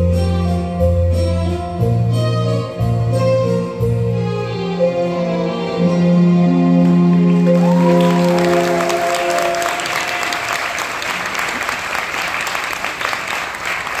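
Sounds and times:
waltz music held chord: 0.0s - 9.7s
audience applause: 6.8s - 14.0s.

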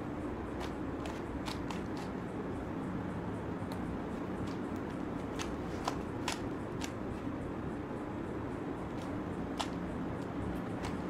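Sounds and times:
steady low hum: 0.0s - 11.0s
puzzle cube layers clicking: 0.5s - 2.3s, 3.6s - 7.4s, 8.8s - 11.0s.

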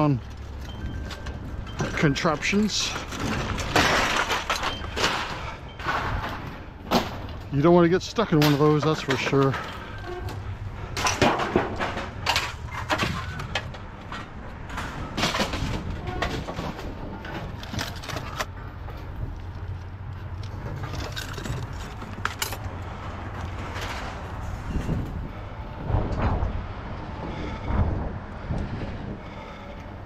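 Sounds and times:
scrap metal clanking: 0.0s - 19.1s
low rumble: 9.6s - 30.0s.

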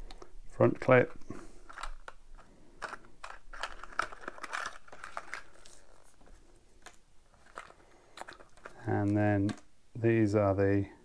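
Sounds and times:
packaging rustling: 0.1s - 9.7s
plastic parts clicking on table: 1.6s - 5.8s, 6.8s - 9.7s.

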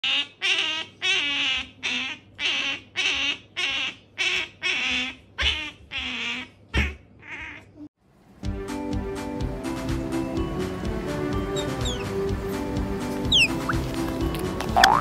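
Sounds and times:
otter squeaking calls: 11.5s - 12.2s, 13.2s - 13.9s.

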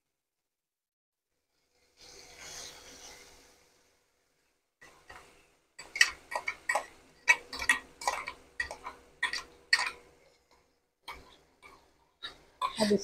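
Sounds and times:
hot oil spitting and popping: 4.8s - 13.0s.

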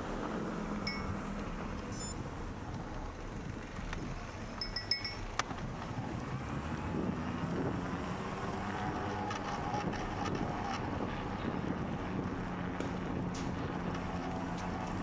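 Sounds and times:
bicycle tyres rolling: 0.0s - 15.0s
wind on microphone: 5.6s - 15.0s.

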